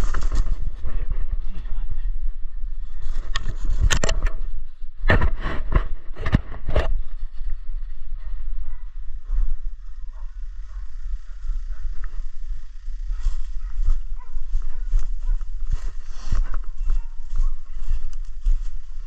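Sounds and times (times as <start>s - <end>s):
steady low rumble: 0.0s - 19.0s
footsteps crunching through leaves: 13.1s - 19.0s.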